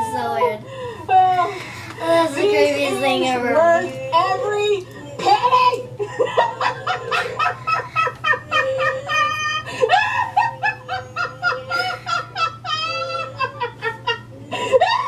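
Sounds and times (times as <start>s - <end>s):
woman laughing hard: 5.2s - 15.0s.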